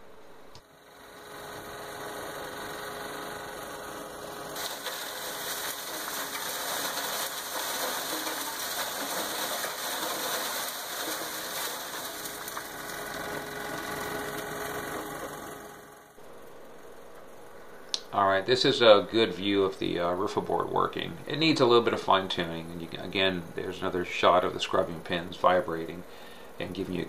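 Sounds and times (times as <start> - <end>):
dirt and rock pouring into hopper: 4.6 - 14.2.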